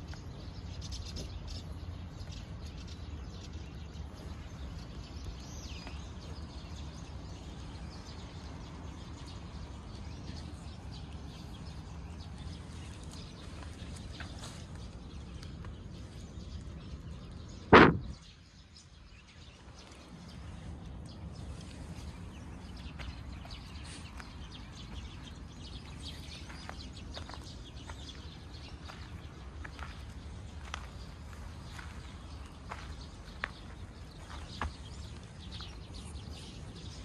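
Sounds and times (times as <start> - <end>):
loud short thump: 17.7 - 18.2.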